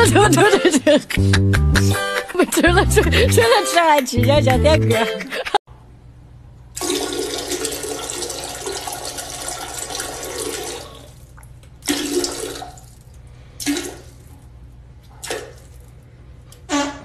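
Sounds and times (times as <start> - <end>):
toilet flushing: 6.8 - 13.0, 13.6 - 14.3.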